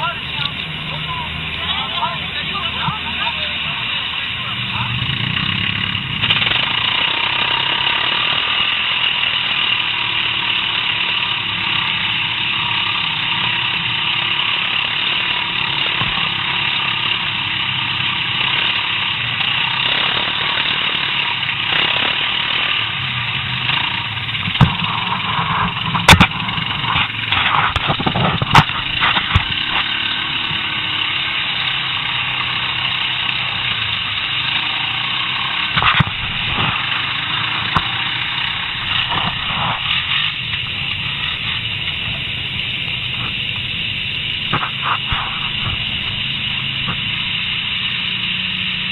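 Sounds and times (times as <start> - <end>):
quad bike engine running: 0.0 - 48.9
sharp knocks and clatters: 23.7 - 30.1, 35.6 - 42.2.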